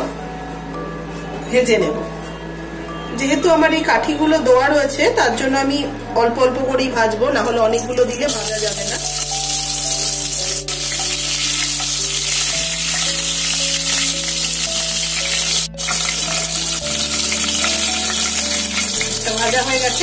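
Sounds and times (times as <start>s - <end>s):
prawns frying in hot oil: 8.3s - 20.0s.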